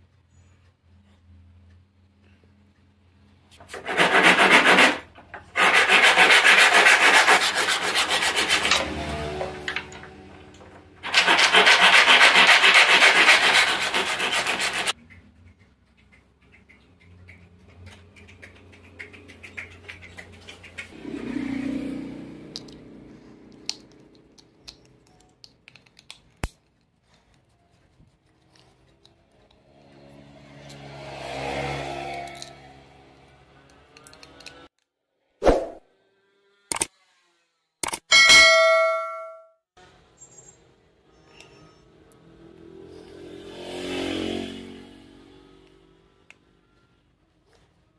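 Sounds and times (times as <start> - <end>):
handsaw cutting wood: 3.6 - 10.0, 11.0 - 15.0
screwdriver clicking and scraping: 23.5 - 30.0, 32.2 - 32.6, 33.7 - 34.6, 36.7 - 36.9, 37.8 - 38.1.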